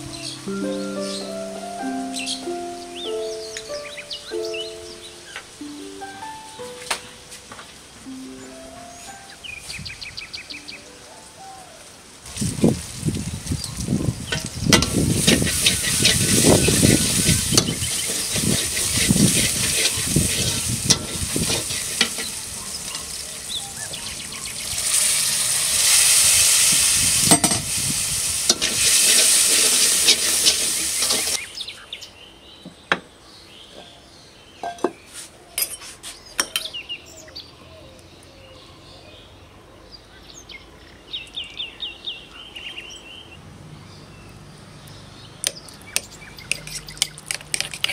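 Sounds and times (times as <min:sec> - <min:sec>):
food sizzling in hot oil: 0:12.2 - 0:31.5
spatula scraping a pan: 0:14.3 - 0:23.2, 0:28.5 - 0:31.4, 0:46.4 - 0:47.9.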